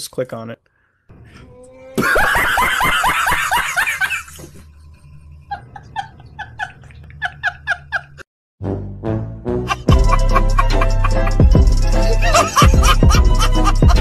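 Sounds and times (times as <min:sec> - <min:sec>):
man laughing hard: 0:02.0 - 0:04.4, 0:05.5 - 0:08.2, 0:09.7 - 0:14.0.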